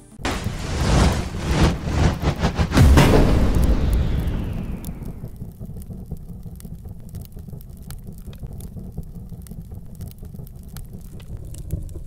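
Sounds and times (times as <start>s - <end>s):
fire crackles: 0.2s - 12.0s
low rumble: 0.2s - 12.0s.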